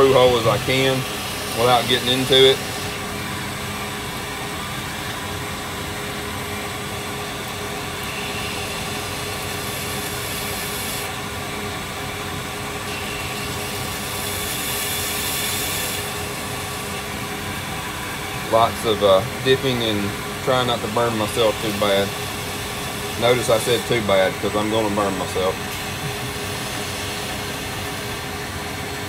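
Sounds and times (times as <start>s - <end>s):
metal grinding hiss on belt: 0.0s - 3.0s, 8.1s - 11.1s, 12.9s - 16.8s, 18.5s - 28.2s
belt grinder running: 0.0s - 29.0s.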